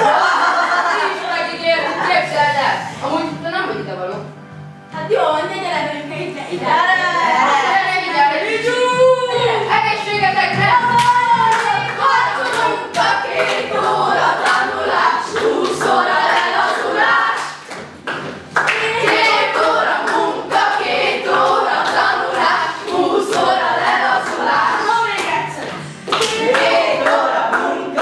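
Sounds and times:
young voices singing together: 0.0s - 2.9s, 6.1s - 28.0s
hand claps: 11.0s - 14.6s, 17.3s - 20.7s, 25.2s - 28.0s.

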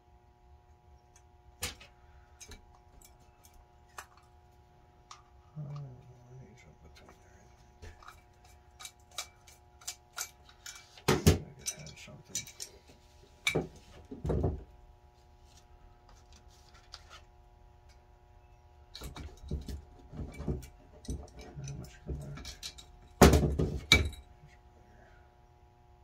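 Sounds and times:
faint steady hum: 0.0s - 26.0s
small metal parts clinking: 7.8s - 11.0s, 18.9s - 24.3s.

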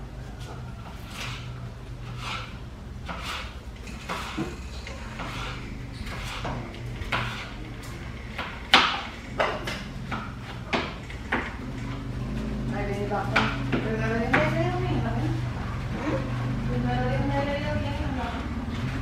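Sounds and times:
knife chopping on cutting board: 2.1s - 4.5s, 6.1s - 7.5s.

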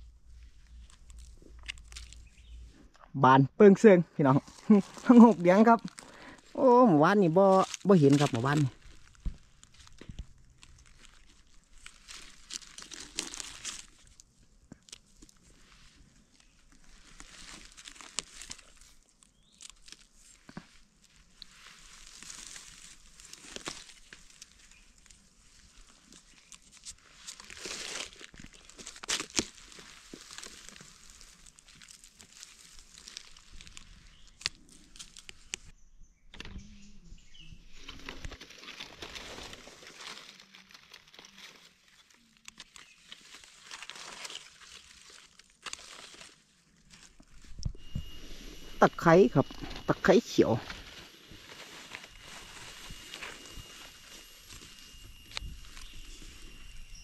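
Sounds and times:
dry leaves rustling and crackling: 0.0s - 2.8s, 4.2s - 35.7s, 37.7s - 57.0s
small clicks and scrapes: 0.4s - 3.0s, 8.8s - 35.7s.

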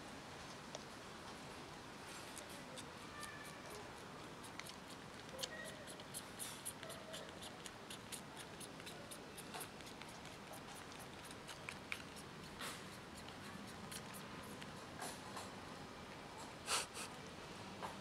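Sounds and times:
kitten suckling wet clicks: 2.3s - 15.2s.

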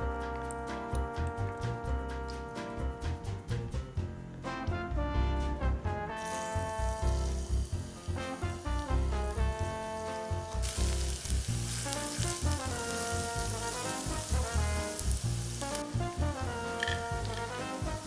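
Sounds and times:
background music with bass: 0.0s - 18.0s
garlic sizzling in hot oil: 6.2s - 18.0s.

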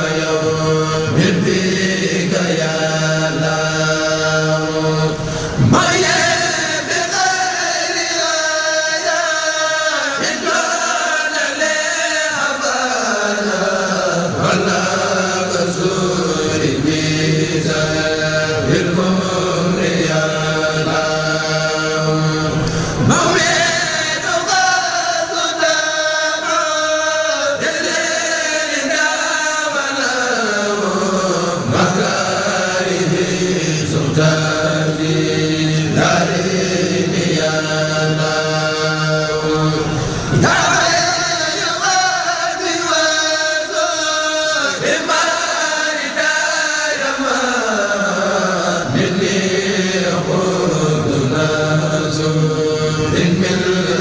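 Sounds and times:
men chanting: 0.0s - 54.0s.

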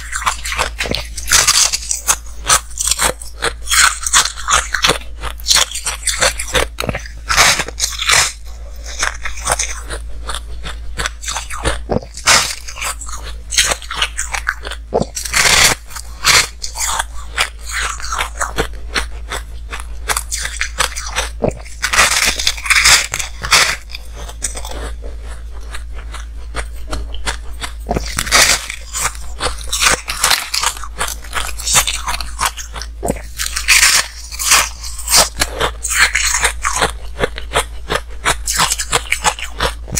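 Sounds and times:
ice crunching while chewed: 0.0s - 39.9s.

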